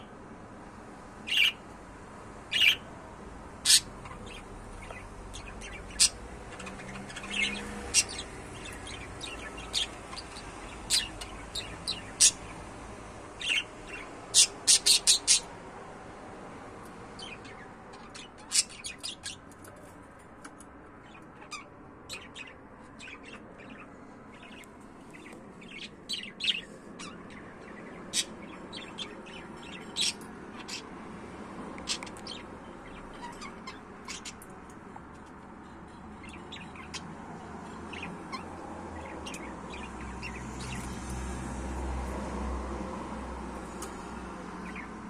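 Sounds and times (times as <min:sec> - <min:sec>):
budgerigars chirping: 0:01.3 - 0:01.6, 0:02.5 - 0:02.9, 0:03.6 - 0:12.7, 0:13.4 - 0:15.5, 0:17.1 - 0:19.5, 0:21.0 - 0:30.9, 0:31.8 - 0:34.4, 0:36.2 - 0:40.9, 0:44.6 - 0:45.0.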